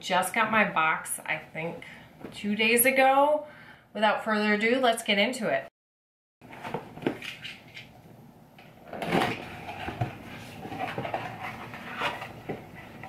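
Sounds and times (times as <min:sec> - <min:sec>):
cardboard lid rustling scrape: 0:08.9 - 0:13.0.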